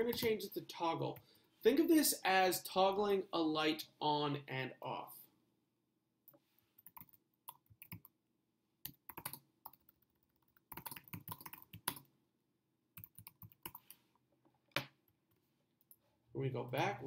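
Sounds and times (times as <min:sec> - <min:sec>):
keyboard typing: 0:06.8 - 0:08.2, 0:08.8 - 0:12.1, 0:13.0 - 0:14.0.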